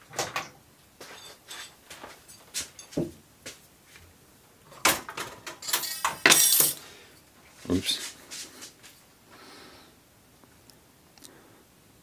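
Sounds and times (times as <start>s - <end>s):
metal tools clicking and knocking: 5.1s - 6.8s.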